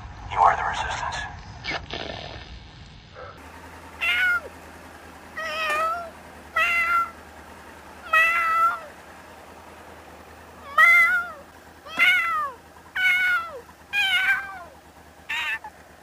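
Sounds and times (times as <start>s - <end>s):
cat meowing: 4.0s - 4.5s, 5.4s - 7.2s, 8.0s - 8.9s, 10.6s - 15.7s.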